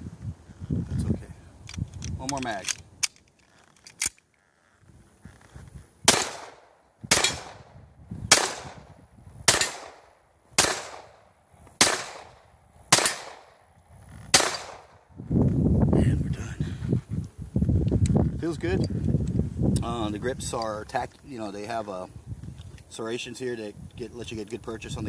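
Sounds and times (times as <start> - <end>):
pistol shots with echo: 6.1 - 7.7, 8.3 - 8.9, 9.5 - 11.2, 11.8 - 13.6, 14.3 - 15.0.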